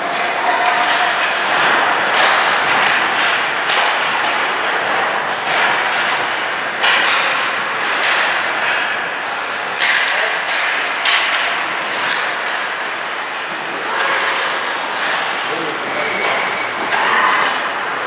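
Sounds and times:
hockey sticks knocking puck: 0.0s - 17.9s
skates hissing on ice: 13.7s - 15.9s.

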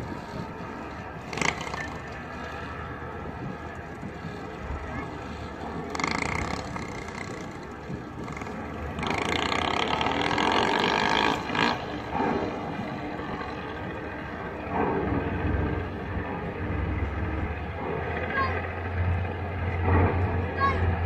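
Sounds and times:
motorcycle engine pulling away: 1.0s - 3.0s, 3.6s - 17.2s.

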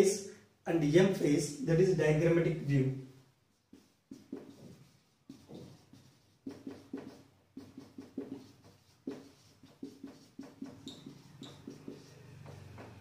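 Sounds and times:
marker writing on whiteboard: 3.4s - 13.0s.

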